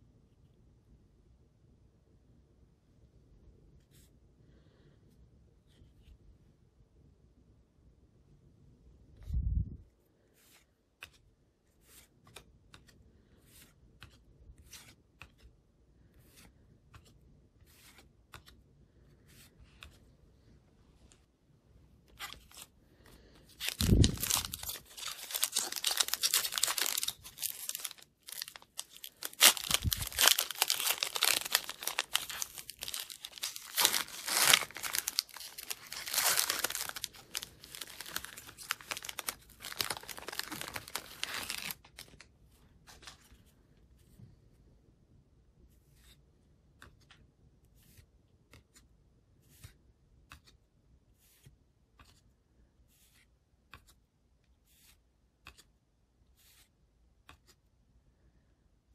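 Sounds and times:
cards flipping with soft ticks: 0:10.3 - 0:20.2, 0:45.7 - 0:57.7
foil wrapper tearing and crinkling: 0:23.7 - 0:42.2.

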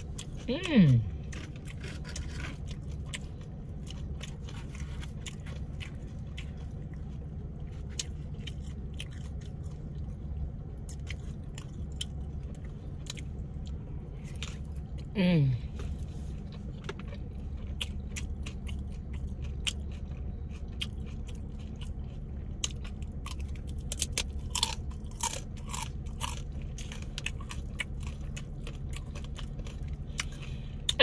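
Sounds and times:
chewing crunchy chips: 0:00.0 - 0:31.0
steady low hum: 0:00.0 - 0:31.0
person humming mm: 0:00.5 - 0:01.1, 0:15.2 - 0:15.7.

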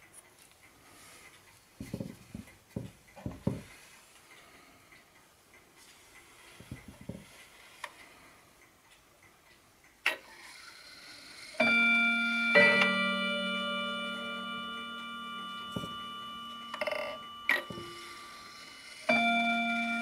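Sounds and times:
clock hand knocks and clicks: 0:01.8 - 0:03.7
bell-like clock chime: 0:11.6 - 0:20.0.

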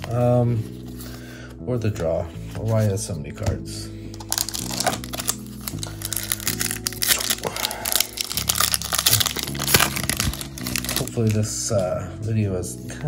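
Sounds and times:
background music: 0:00.0 - 0:13.0
foil wrapper tearing and crinkling: 0:04.2 - 0:11.5.

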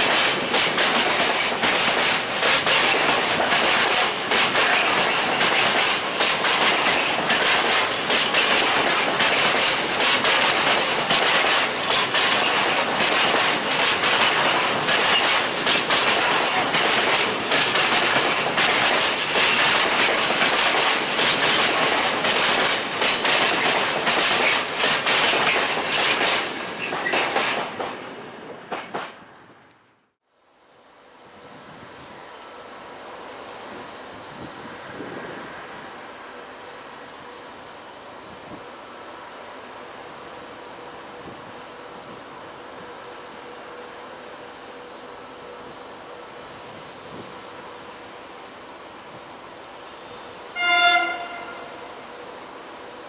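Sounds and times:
freight train rumble: 0:00.0 - 0:29.7, 0:30.5 - 0:53.0
train wheels clickety-clack: 0:00.0 - 0:29.8.

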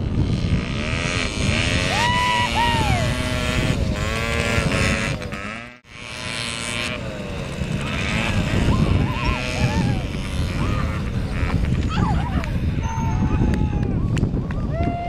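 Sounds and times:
scooter engines buzzing and revving: 0:00.0 - 0:15.0.

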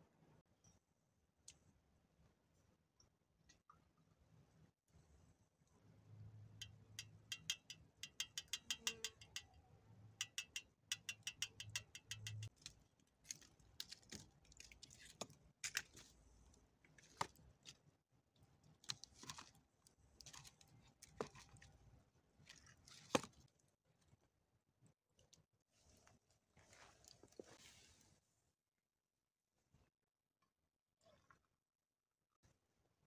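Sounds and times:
metal spoon clinking coffee pot: 0:06.6 - 0:09.6, 0:10.2 - 0:12.5.

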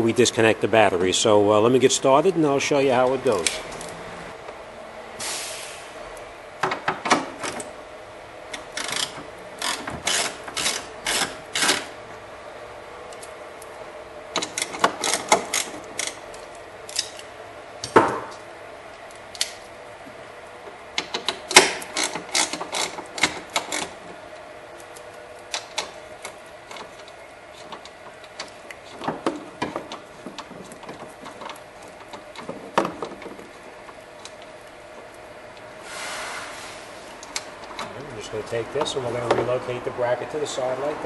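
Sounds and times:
ratchet wrench clicking: 0:08.6 - 0:11.9, 0:14.4 - 0:16.3, 0:21.0 - 0:24.0.

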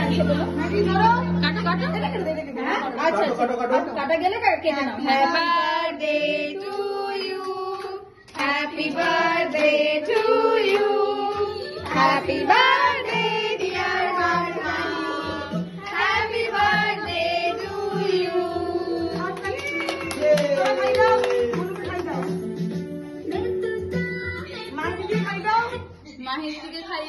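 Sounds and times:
song with singing: 0:05.3 - 0:20.6, 0:21.4 - 0:24.8.

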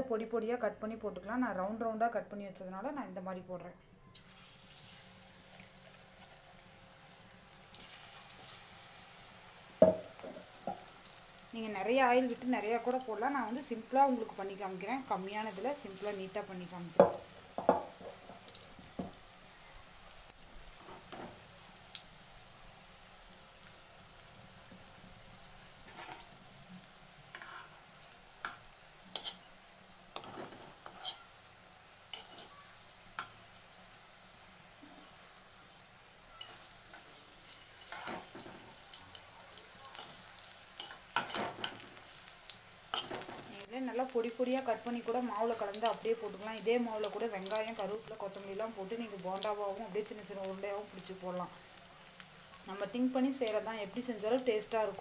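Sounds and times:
onion rings sizzling in oil: 0:04.1 - 0:55.0
metal spoon scraping a pan: 0:25.6 - 0:26.3, 0:27.3 - 0:27.8, 0:28.4 - 0:29.5, 0:30.1 - 0:31.4, 0:32.1 - 0:32.5, 0:36.4 - 0:38.9, 0:39.9 - 0:42.1, 0:42.9 - 0:43.7.

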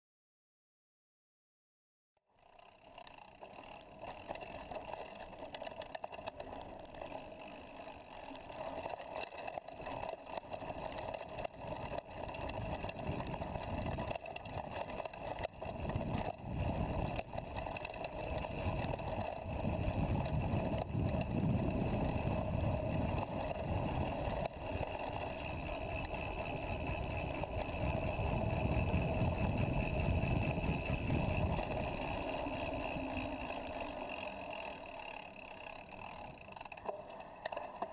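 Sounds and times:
bike rattling: 0:02.4 - 0:37.9
bike tyres rolling over dirt and rock: 0:02.4 - 0:37.9
wind rumble on microphone: 0:11.6 - 0:14.7, 0:15.6 - 0:24.9, 0:26.5 - 0:32.2.

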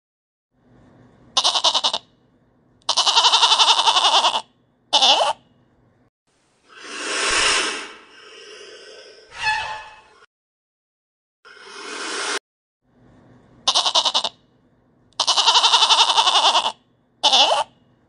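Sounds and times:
goats bleating: 0:01.4 - 0:02.0, 0:02.9 - 0:04.4, 0:13.7 - 0:14.3, 0:15.2 - 0:17.7.

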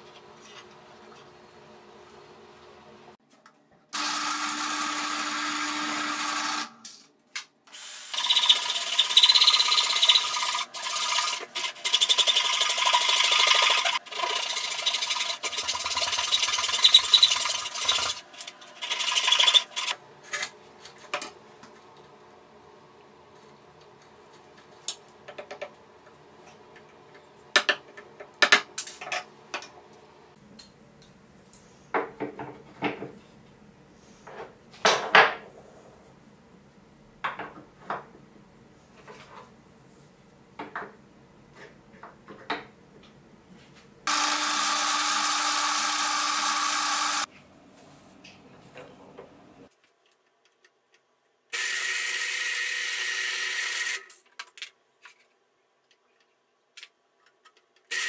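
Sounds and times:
drill press boring into wood: 0:04.0 - 0:06.7, 0:08.1 - 0:18.2, 0:44.1 - 0:47.3
hand saw cutting wood: 0:08.2 - 0:20.0.

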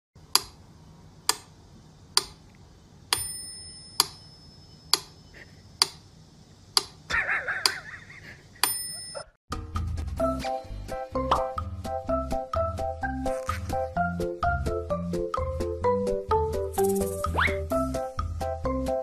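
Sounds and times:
metronome ticking: 0:03.1 - 0:04.3
metronome bell ding: 0:03.2 - 0:04.9, 0:08.6 - 0:09.3.

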